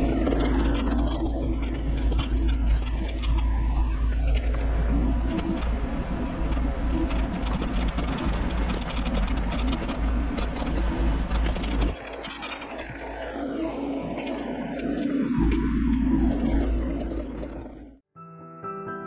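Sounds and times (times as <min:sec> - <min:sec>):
excavator engine and hydraulics running: 0:00.0 - 0:18.0.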